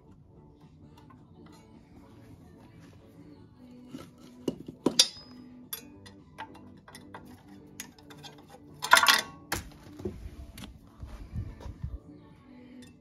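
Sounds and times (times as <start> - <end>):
tools clicking and clinking: 4.4 - 9.5.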